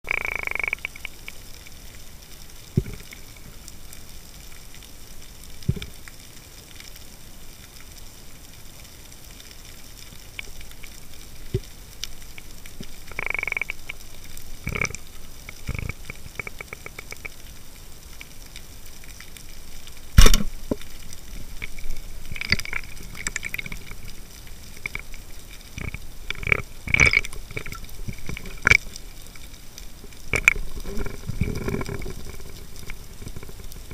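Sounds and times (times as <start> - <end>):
underwater clicks and knocks: 2.8 - 3.1, 14.6 - 17.4, 20.2 - 20.9, 21.6 - 24.1, 24.8 - 29.0, 30.3 - 33.9
speargun firing crack: 20.2 - 20.5
knocks and rattles of fish struggling: 21.6 - 24.1, 24.8 - 29.0.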